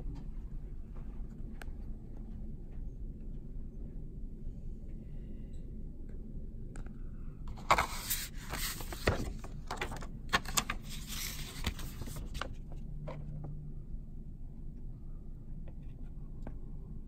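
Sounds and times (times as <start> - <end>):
cardboard boxes rustling and scraping: 7.5 - 10.0.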